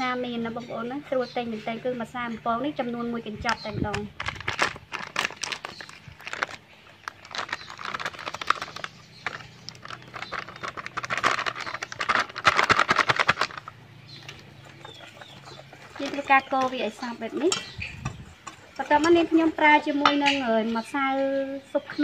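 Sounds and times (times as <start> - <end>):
foil packet crinkling: 3.9 - 14.5.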